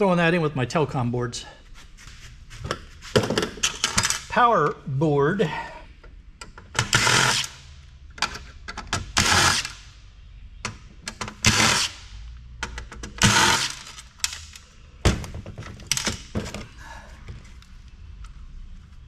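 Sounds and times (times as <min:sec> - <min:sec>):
cordless impact driver bursts: 0:09.1 - 0:09.8, 0:13.2 - 0:13.9.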